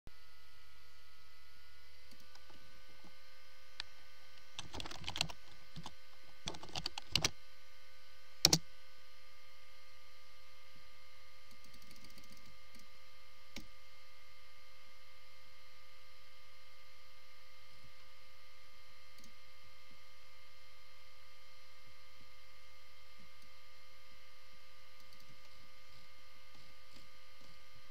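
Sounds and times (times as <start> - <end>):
electrical hum: 0.1 - 27.9
keyboard tapping: 4.6 - 5.9, 6.5 - 7.3.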